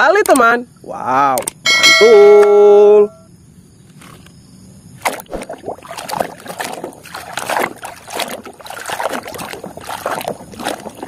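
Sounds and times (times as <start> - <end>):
water sloshing and splashing in basin: 5.0 - 11.0.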